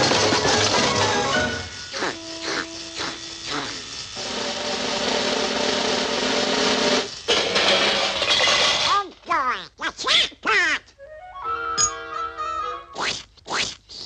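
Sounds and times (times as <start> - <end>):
steady hum: 0.0 - 8.3
cartoon machine grinding: 0.0 - 10.8, 11.8 - 14.0.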